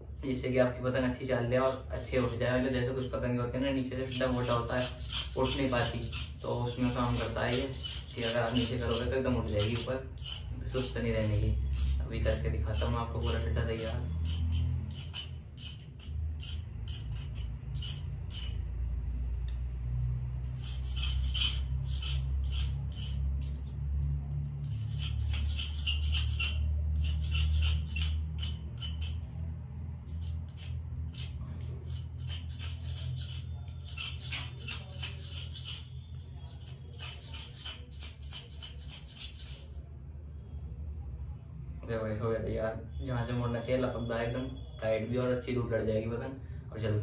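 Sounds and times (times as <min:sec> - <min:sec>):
knife scraping bamboo: 0:01.6 - 0:02.6, 0:04.0 - 0:23.8, 0:24.6 - 0:29.3, 0:30.0 - 0:39.8.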